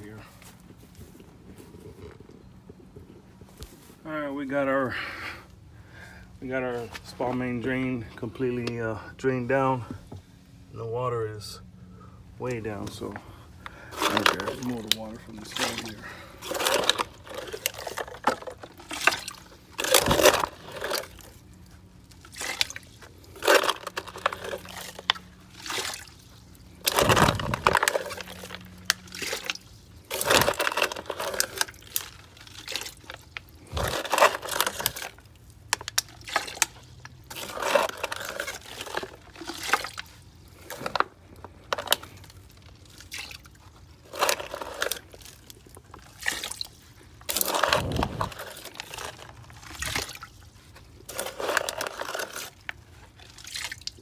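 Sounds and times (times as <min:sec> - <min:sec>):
water splashing and pouring: 0:14.0 - 0:54.0.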